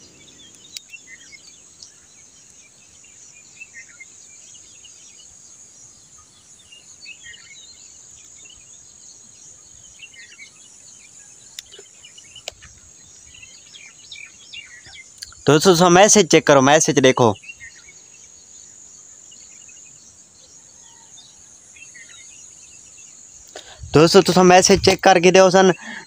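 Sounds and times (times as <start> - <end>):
bird chirps: 0.0 - 26.0
faint clicks: 1.7 - 2.6, 11.5 - 12.8.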